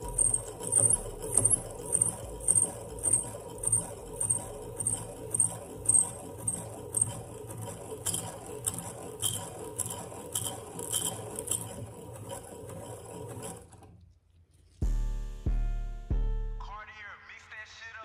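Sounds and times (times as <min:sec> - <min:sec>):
rasping scrape of filer: 0:00.0 - 0:14.0.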